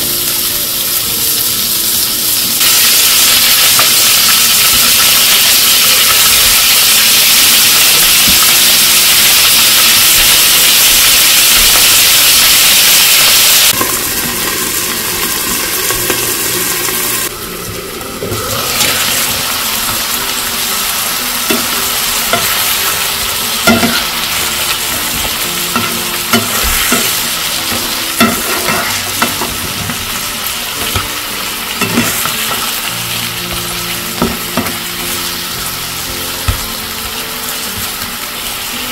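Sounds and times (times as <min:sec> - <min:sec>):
vegetables sizzling in oil: 0:00.0 - 0:38.9
utensil clicking and knocking in pan: 0:23.6 - 0:24.1, 0:24.9 - 0:30.1.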